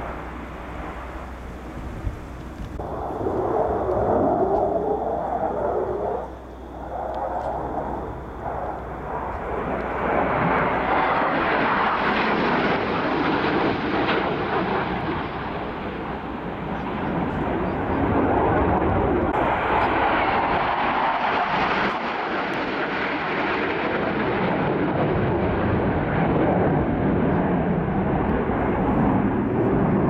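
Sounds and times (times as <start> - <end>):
jet engine roar: 0.0 - 30.0.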